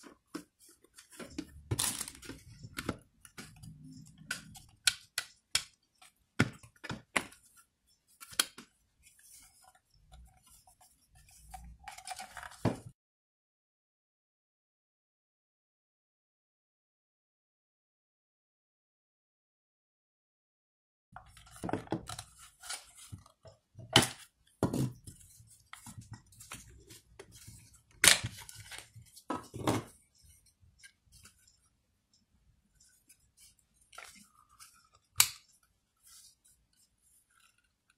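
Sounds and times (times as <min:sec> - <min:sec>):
plastic parts clicking and knocking: 0:00.0 - 0:07.4, 0:21.2 - 0:22.4
soft handling noise: 0:00.0 - 0:12.9, 0:21.2 - 0:37.9.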